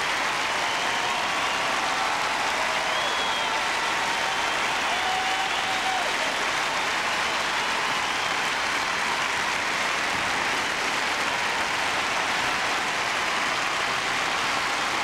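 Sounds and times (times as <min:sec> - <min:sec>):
audience applauding: 0:00.0 - 0:15.0.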